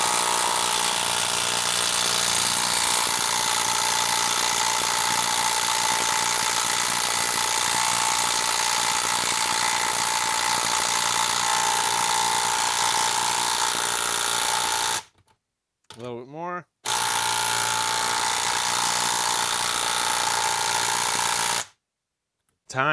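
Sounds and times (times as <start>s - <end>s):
impact driver hammering: 0.0s - 15.1s.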